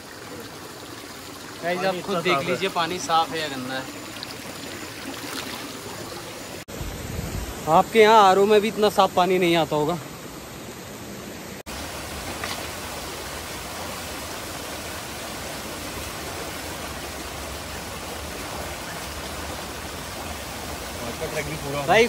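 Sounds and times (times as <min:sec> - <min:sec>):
stream rushing over rocks: 0:00.0 - 0:06.7, 0:11.7 - 0:22.0.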